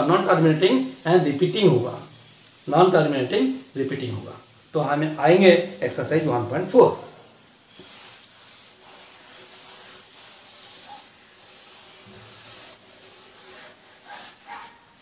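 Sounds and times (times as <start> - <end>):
eraser rubbing chalkboard: 5.0 - 15.0.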